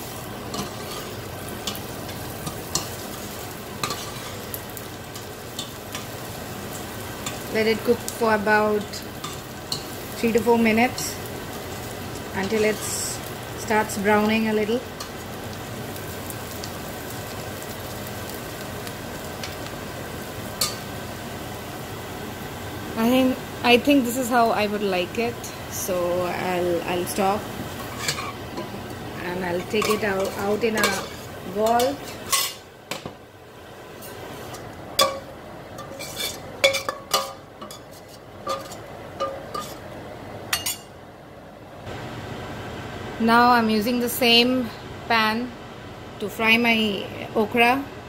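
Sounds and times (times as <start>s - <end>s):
food sizzling in oil: 0.0s - 41.0s
metal spoon clinking on saucepan: 35.0s - 37.9s, 40.5s - 40.9s.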